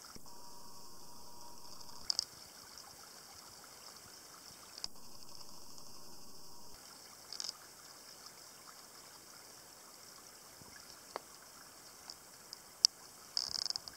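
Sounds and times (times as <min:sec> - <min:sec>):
faint click: 0:00.9 - 0:02.3
water trickling in a channel: 0:01.8 - 0:04.9, 0:06.7 - 0:13.9.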